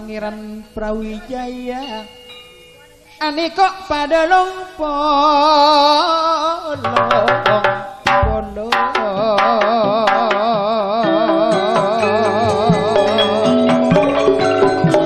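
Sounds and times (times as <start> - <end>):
deep drum thump: 6.8 - 10.4
hand drum strokes: 6.8 - 15.0.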